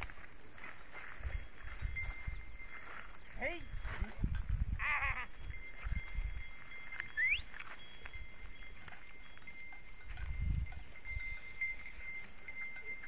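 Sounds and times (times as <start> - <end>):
sheep and goat flock grazing: 0.0 - 13.0
short rising whistle: 7.2 - 7.5.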